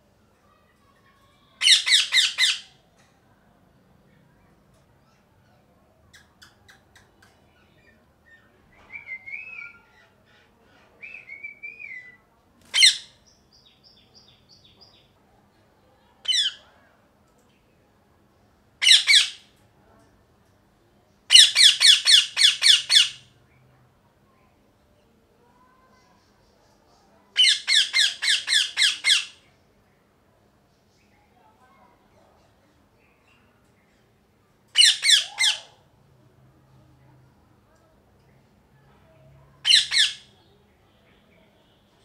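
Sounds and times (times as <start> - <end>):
parakeet high-pitched squawks: 1.4 - 2.8, 12.7 - 13.2, 16.2 - 16.6, 18.8 - 19.5, 21.3 - 23.2, 27.4 - 29.4, 34.7 - 35.9, 39.6 - 40.5
parakeet warbling chatter: 1.6 - 2.7, 12.7 - 13.1, 18.8 - 19.4, 21.3 - 23.2, 27.4 - 29.4, 34.7 - 35.8, 39.6 - 40.3.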